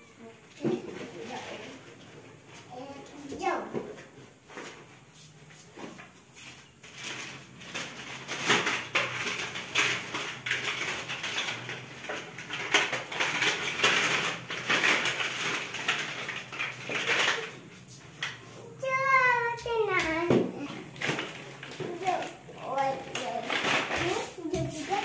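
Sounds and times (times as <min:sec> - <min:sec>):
plastic bag crinkling: 0:06.6 - 0:18.3, 0:20.8 - 0:25.0.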